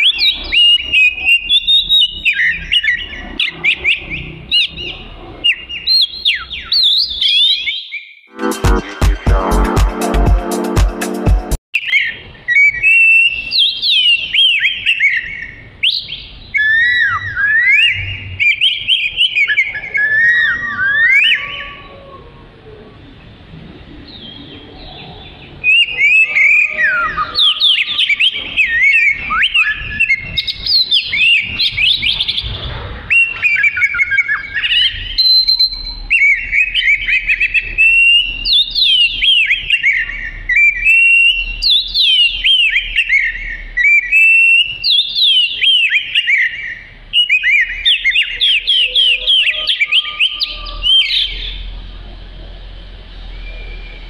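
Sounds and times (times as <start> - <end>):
bird singing whistled notes: 0.0 - 8.3, 11.8 - 21.7, 24.1 - 32.4, 33.1 - 51.7, 53.3 - 54.0.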